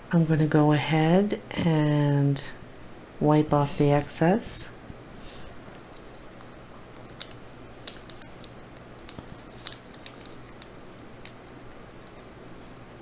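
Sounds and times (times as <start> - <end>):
low steady hum: 0.0 - 13.0
fingers clicking on crinkly paper: 7.0 - 11.4, 12.0 - 12.2.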